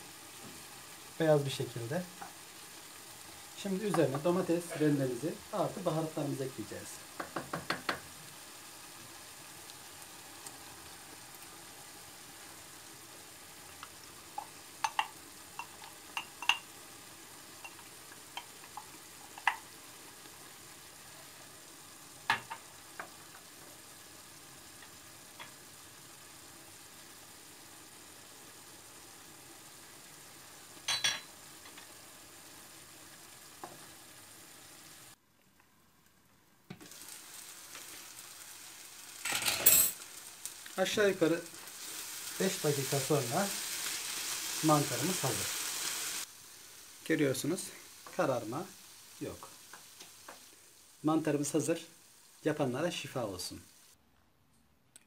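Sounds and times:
mushrooms sizzling in a pan: 0.0 - 35.2, 35.8 - 54.0
utensils knocking against pan: 7.2 - 8.0.

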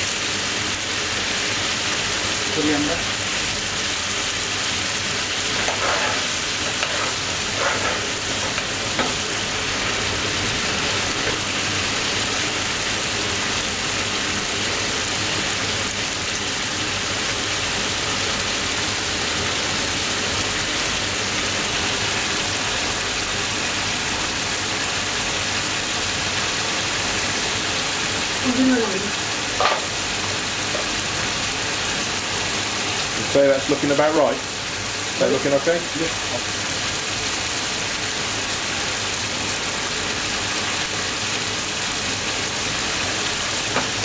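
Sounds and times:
curry sizzling in a pan: 0.0 - 44.0
stirring scrapes: 5.4 - 9.2.

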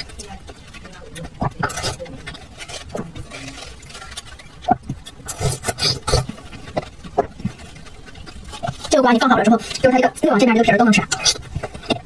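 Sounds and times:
wet chewing: 0.0 - 12.0
spoon scraping melon flesh: 1.2 - 8.9.

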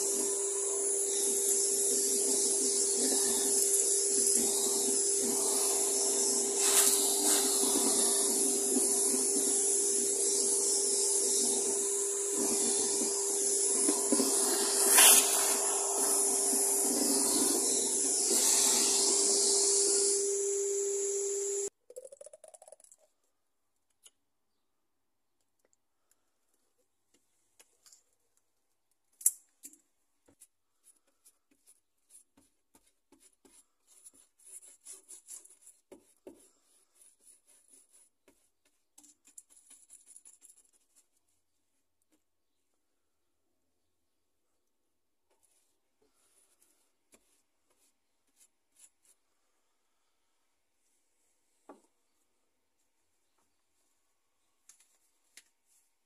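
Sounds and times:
vacuum cleaner running: 0.0 - 21.7
paintbrush scraping: 0.8 - 20.1, 30.8 - 41.4, 45.4 - 49.5.

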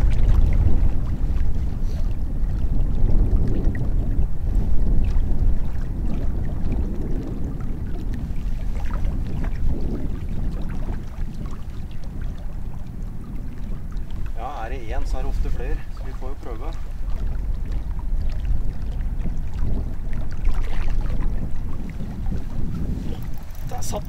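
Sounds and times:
wind buffeting microphone: 0.0 - 24.0
faint ticks: 23.1 - 24.0.

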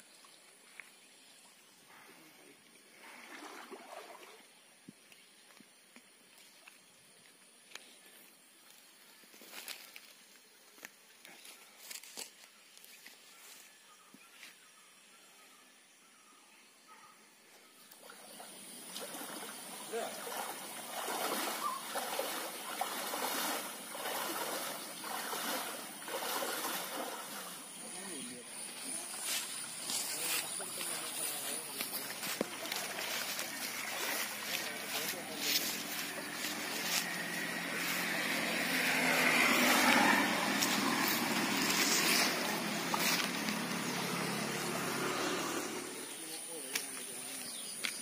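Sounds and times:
stream flowing: 0.0 - 7.1, 17.8 - 47.4
splashes of wading: 2.9 - 4.6, 17.9 - 46.1.

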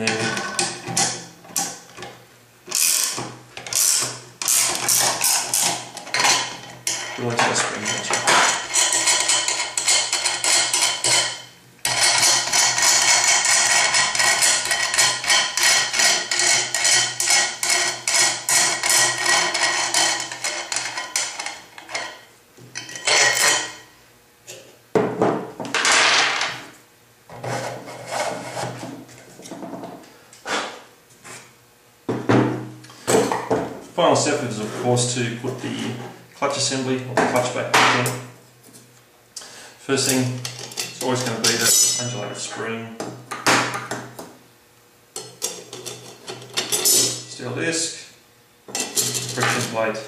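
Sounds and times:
nut rasping on threaded rod: 8.1 - 21.6
metal parts and wood clattering: 22.8 - 23.7, 48.8 - 49.8.

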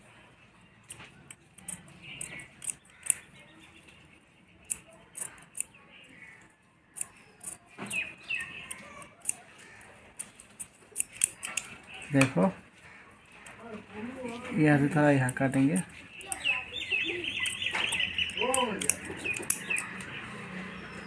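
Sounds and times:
shears snipping through cloth: 7.0 - 11.9, 17.2 - 20.2.

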